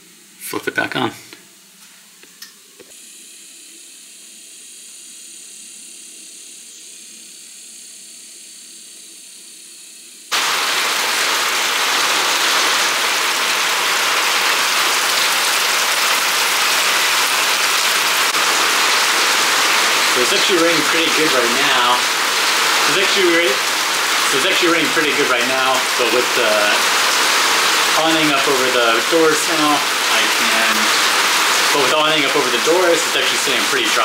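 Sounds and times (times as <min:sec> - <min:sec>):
heavy rain pouring: 0:10.3 - 0:34.0
faint steady hiss: 0:19.6 - 0:34.0.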